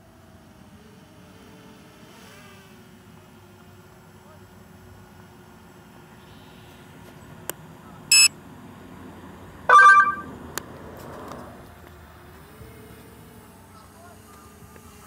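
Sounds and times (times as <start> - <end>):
short electronic beeps: 8.1 - 8.3, 9.7 - 10.3.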